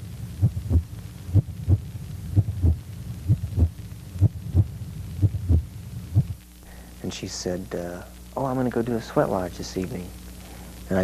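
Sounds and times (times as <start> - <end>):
electrical hum: 0.0 - 11.0
heartbeat thumps: 0.3 - 6.4.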